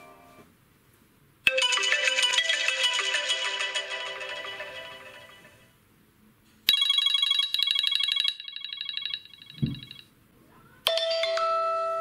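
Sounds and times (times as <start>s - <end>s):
high electronic trill ringtone: 1.5s - 5.6s, 6.7s - 10.0s
low thump: 9.6s - 9.8s.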